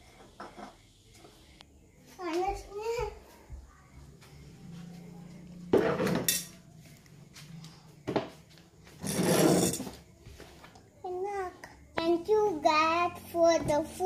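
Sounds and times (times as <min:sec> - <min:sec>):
plastic chair scraping tiled floor: 0:05.6 - 0:06.5, 0:08.1 - 0:10.7.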